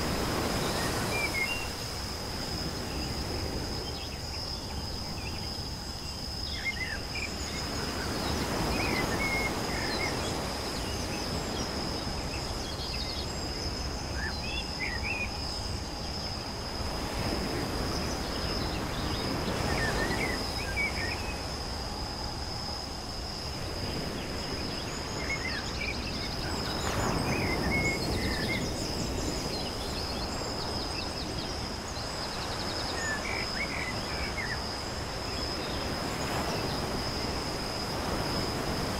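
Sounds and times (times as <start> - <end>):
crickets trilling: 0.0 - 38.9
high insect drone: 0.0 - 38.9.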